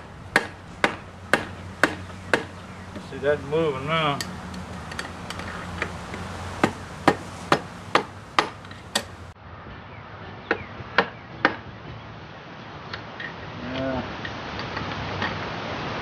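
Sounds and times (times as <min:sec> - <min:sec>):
hammer tapping steel bar: 0:04.9 - 0:09.1.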